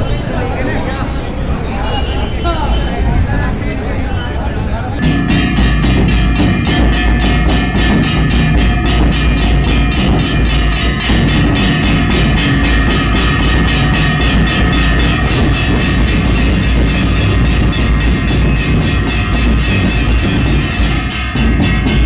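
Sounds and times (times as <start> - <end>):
brass cymbals ringing: 5.0 - 22.0
drums booming: 5.0 - 22.0.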